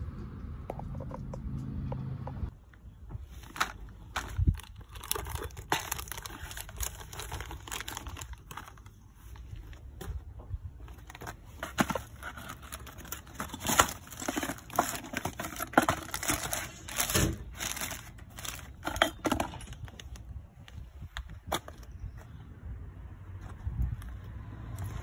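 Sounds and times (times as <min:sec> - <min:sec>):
plastic bag and cardboard crinkling: 0:03.2 - 0:21.9.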